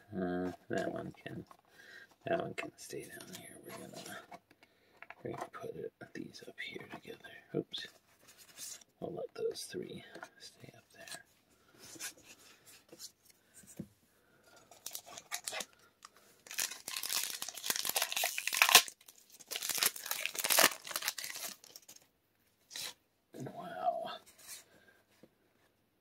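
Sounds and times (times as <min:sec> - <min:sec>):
wrapper tearing and crinkling: 0:14.7 - 0:15.7, 0:16.4 - 0:22.0.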